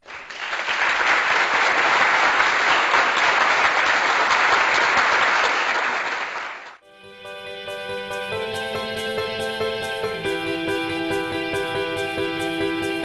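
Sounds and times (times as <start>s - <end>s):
crowd applause: 0.0s - 6.8s.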